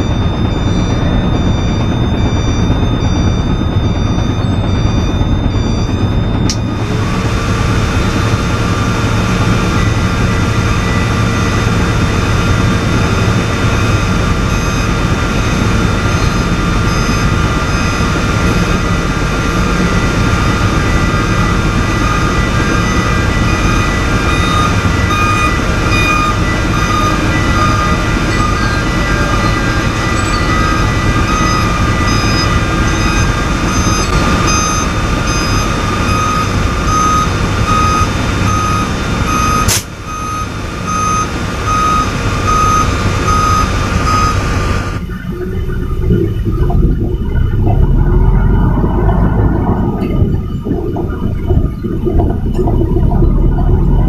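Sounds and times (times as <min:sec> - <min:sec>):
reversing alarm beeping: 0:00.0 - 0:54.0
truck engine running: 0:00.0 - 0:54.0.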